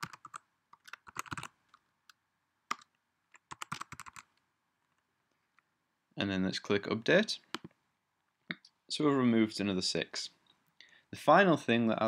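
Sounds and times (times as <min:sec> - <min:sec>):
computer keyboard typing: 0:00.0 - 0:01.8, 0:02.7 - 0:04.3.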